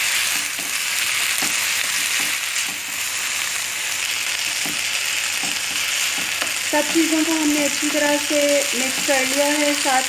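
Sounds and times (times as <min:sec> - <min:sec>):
food sizzling in a frying pan: 0:00.0 - 0:10.0
spatula scraping and knocking pan: 0:00.2 - 0:03.1, 0:04.4 - 0:07.2, 0:08.7 - 0:09.9.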